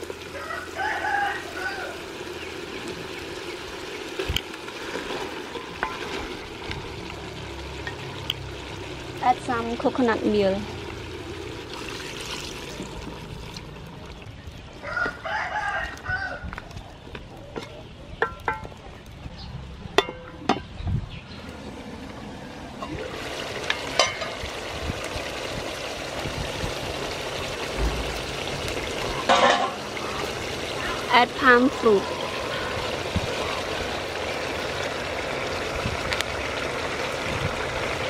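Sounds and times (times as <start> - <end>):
rooster crowing: 0.2 - 2.2, 14.8 - 16.6.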